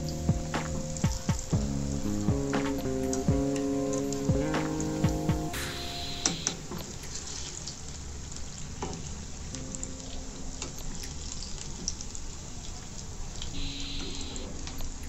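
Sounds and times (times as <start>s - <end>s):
hot oil sizzling: 0.0s - 15.0s.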